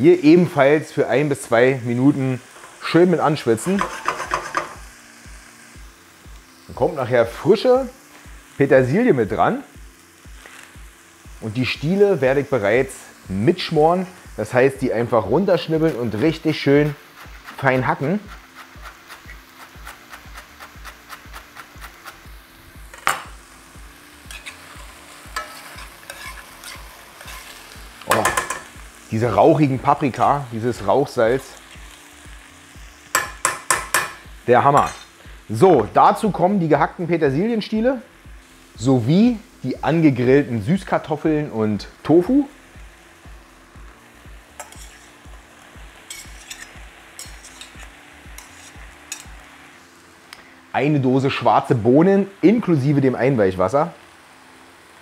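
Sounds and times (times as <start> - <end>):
vegetables sizzling in frying pan: 0.0 - 55.0
metal spoon scraping a plate: 3.7 - 4.8, 24.3 - 24.7, 25.4 - 27.6, 44.6 - 45.2, 46.1 - 49.3.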